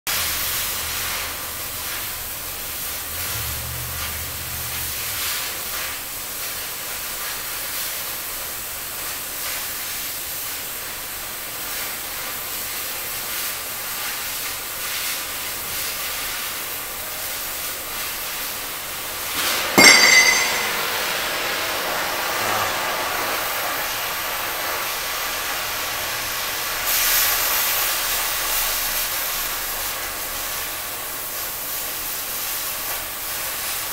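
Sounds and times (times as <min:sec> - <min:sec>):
metal clang ringing: 0:19.8 - 0:21.0.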